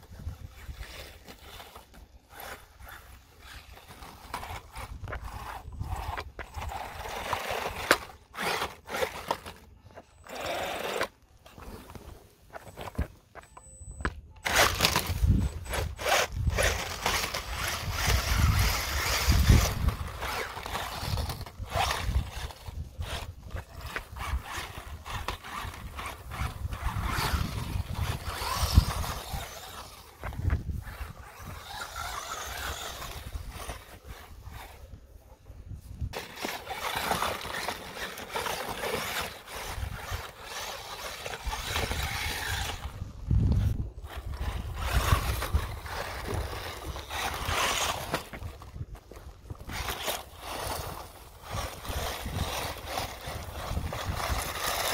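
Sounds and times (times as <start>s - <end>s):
tyres scrabbling on rock: 0.0s - 35.0s, 36.0s - 54.9s
toy car motor whirring: 0.1s - 35.4s, 36.1s - 54.9s
wind rumbling on microphone: 4.1s - 8.1s, 14.0s - 37.6s, 39.1s - 54.9s.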